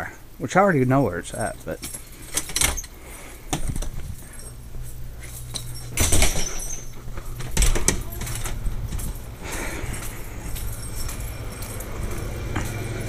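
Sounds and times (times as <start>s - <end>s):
keys jangling: 1.3s - 13.0s
footsteps: 2.9s - 13.0s.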